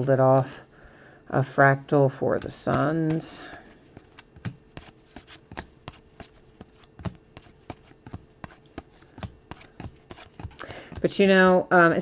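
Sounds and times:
trading cards flipping: 0:02.4 - 0:11.1.

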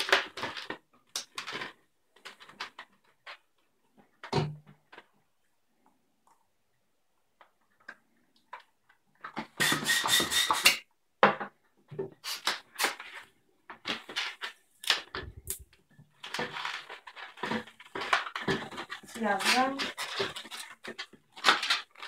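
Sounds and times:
balloon handling noises: 0:12.1 - 0:22.0.

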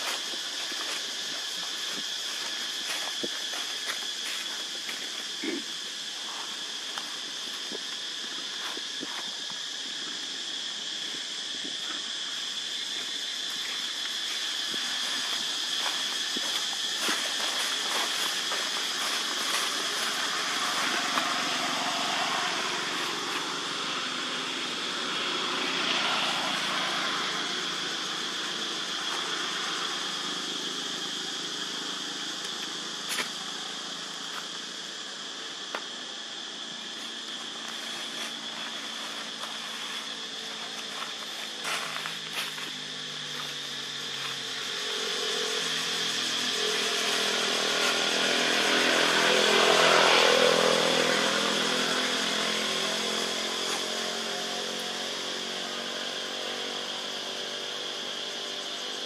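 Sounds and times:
steady high-pitched hiss: 0:00.0 - 0:59.0
motorbike passing on road: 0:17.0 - 0:32.3, 0:36.4 - 0:59.0.

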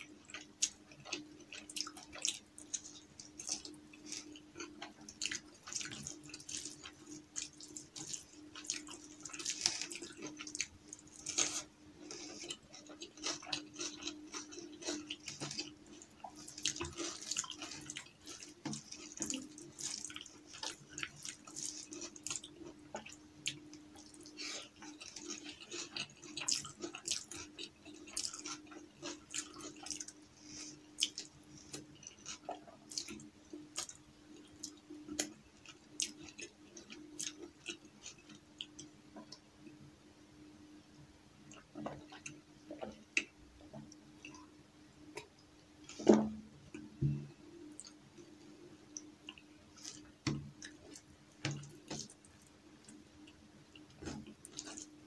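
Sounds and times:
mouth chewing: 0:00.0 - 0:38.9
faint steady hum: 0:00.0 - 0:55.0.

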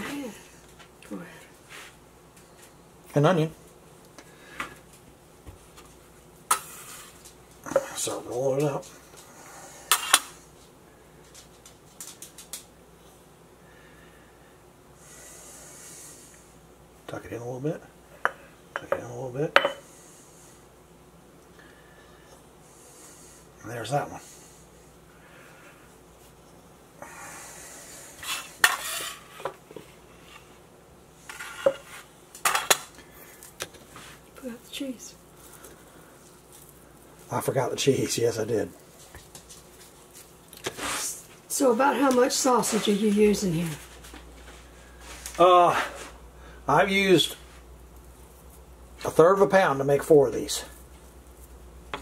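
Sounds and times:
metal scraper on stone countertop: 0:28.2 - 0:29.5.

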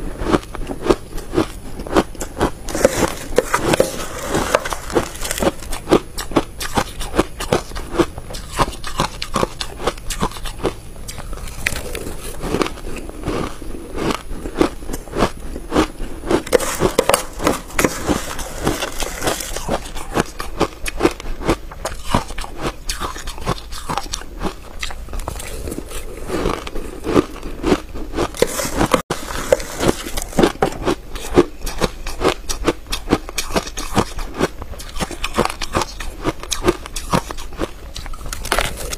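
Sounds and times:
crunching and chewing ice: 0:00.0 - 0:38.9.

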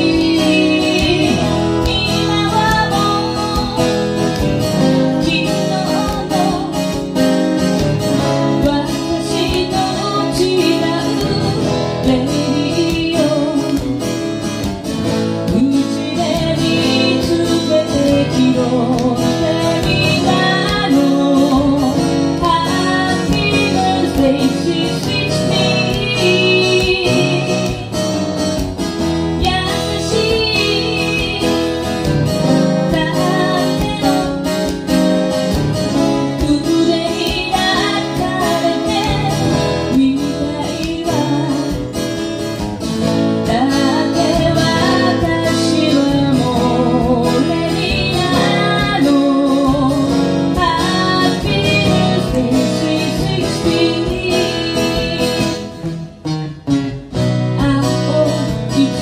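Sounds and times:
person singing: 0:00.0 - 0:07.5, 0:15.4 - 0:28.2, 0:29.4 - 0:42.2, 0:43.4 - 0:55.9, 0:57.4 - 0:59.0
strummed guitar: 0:00.0 - 0:59.0.

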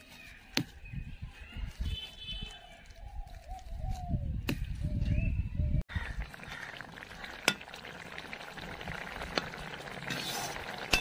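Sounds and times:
fish sizzling in oil: 0:06.3 - 0:11.0.

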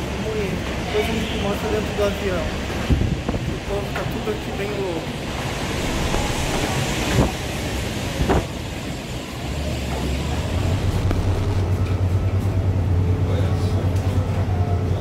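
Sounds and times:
mechanical background noise: 0:04.6 - 0:13.2
pulsing low hum: 0:05.3 - 0:07.7, 0:10.1 - 0:13.0.

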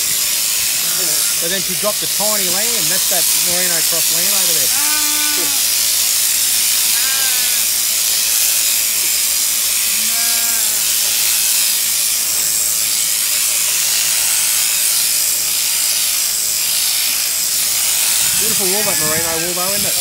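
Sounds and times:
shearing handpiece buzzing: 0:00.0 - 0:20.0
sheep bleating: 0:00.8 - 0:01.6, 0:03.0 - 0:05.8, 0:06.7 - 0:07.8, 0:09.9 - 0:11.0, 0:17.9 - 0:19.7.

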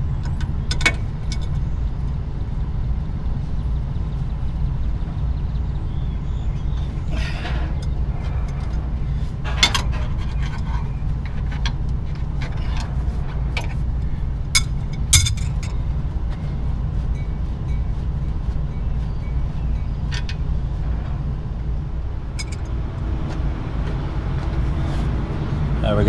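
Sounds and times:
steady low rumble: 0:00.0 - 0:26.0
wrench clinking on metal fittings: 0:22.4 - 0:22.7.

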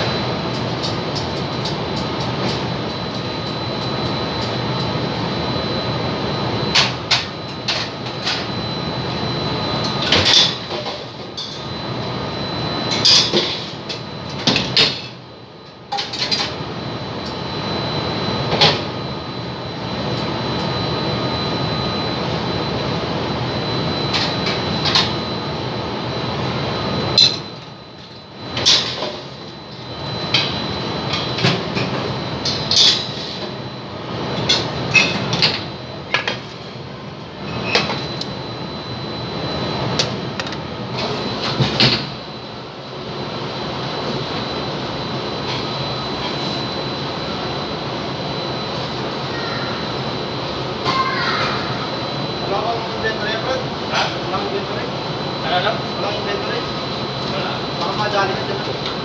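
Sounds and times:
faint high whine: 0:15.9 - 0:59.0.

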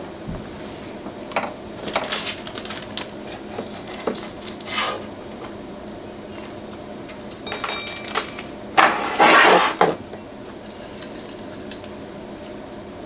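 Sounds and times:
noisy handling sound: 0:06.4 - 0:13.0
metal tools clinking on desk: 0:07.4 - 0:08.4.

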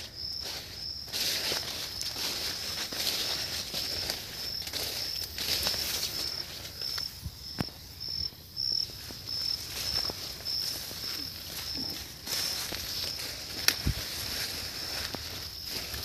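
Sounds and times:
rustling: 0:00.0 - 0:07.1, 0:08.9 - 0:16.0
insect chirping: 0:00.0 - 0:16.0.

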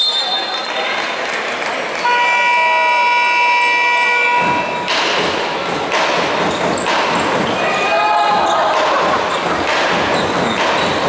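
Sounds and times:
crowd noise in hall: 0:00.0 - 0:11.0
game horn buzzer: 0:02.1 - 0:04.7.

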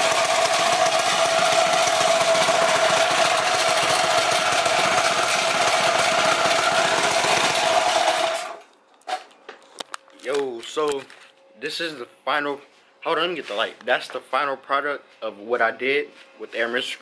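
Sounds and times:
small engine idling: 0:00.0 - 0:08.6.

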